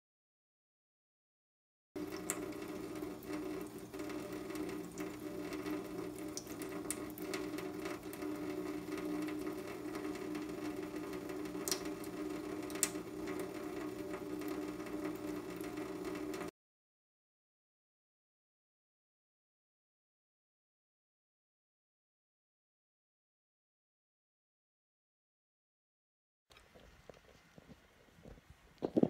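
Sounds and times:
faucet running into sink: 2.0 - 16.5.

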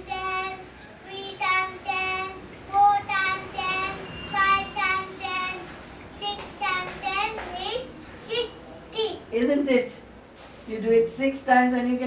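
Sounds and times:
child sing-song syllables: 0.0 - 9.2.

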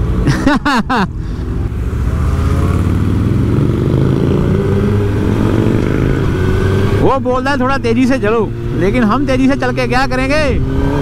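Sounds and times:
wind and road noise: 0.0 - 11.0
motorcycle engine accelerating: 1.4 - 11.0.

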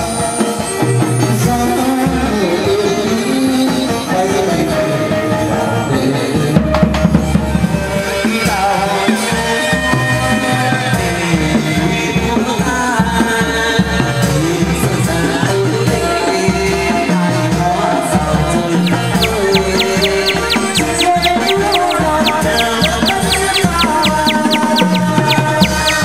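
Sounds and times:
person singing: 18.8 - 26.0.

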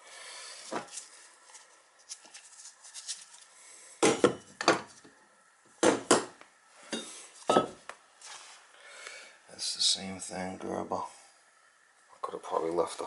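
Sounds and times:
metal pipe pieces clunking on wood: 6.9 - 7.8.

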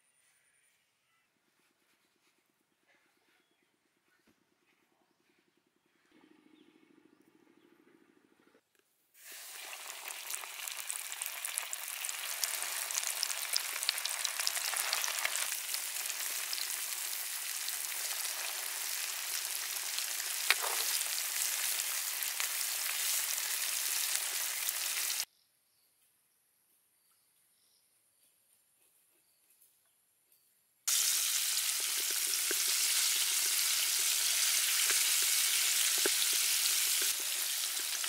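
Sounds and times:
fish deep-frying in oil: 9.2 - 25.3, 30.9 - 38.0.

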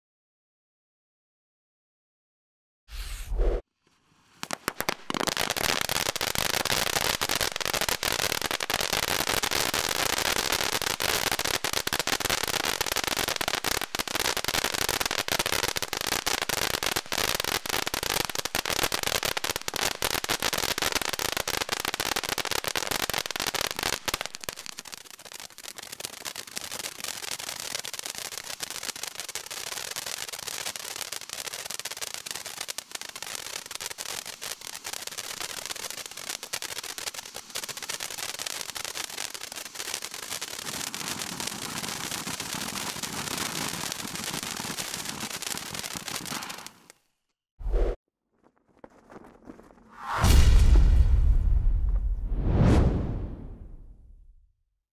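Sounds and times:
firework fountain hissing and crackling: 3.9 - 47.0.

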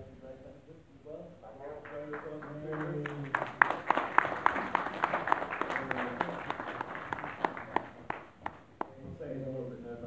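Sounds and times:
audience applauding: 1.7 - 8.9.

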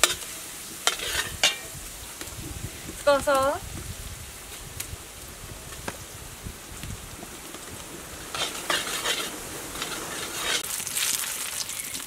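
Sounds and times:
metal spatula scraping wok: 0.0 - 1.8, 8.3 - 10.7
garlic sizzling in oil: 0.0 - 12.0.

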